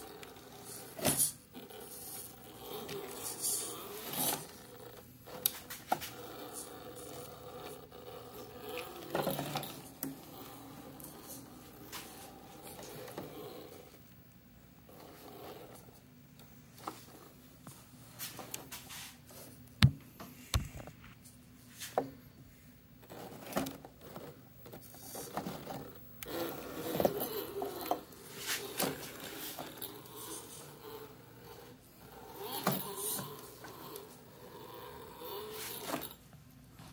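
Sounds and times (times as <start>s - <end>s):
faint drivetrain whir: 0.0s - 14.1s, 23.0s - 36.2s
tyres knocking and scraping on wood: 19.8s - 20.8s.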